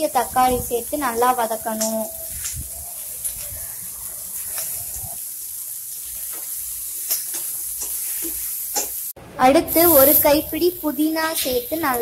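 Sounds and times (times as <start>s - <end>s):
vegetables sizzling in oil: 0.0s - 12.0s
stirring clicks in pan: 6.3s - 9.0s.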